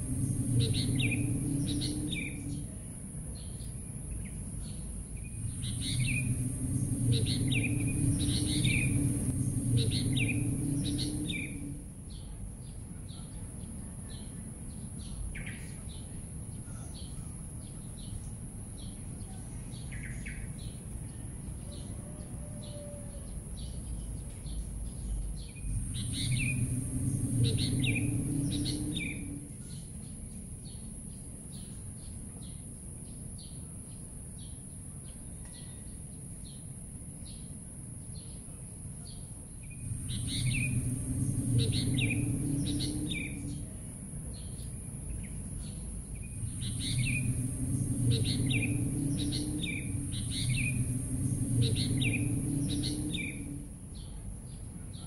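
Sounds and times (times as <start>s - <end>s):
low rumble: 0.0s - 16.6s, 23.7s - 30.9s, 39.3s - 55.0s
small birds chirping: 0.0s - 55.0s
steady high-pitched hiss: 0.0s - 55.0s.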